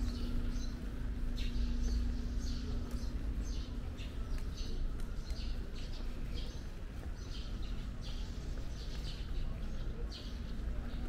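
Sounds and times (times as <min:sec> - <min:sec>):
small birds chirping: 0:00.0 - 0:11.0
steady low rumble: 0:00.0 - 0:11.0.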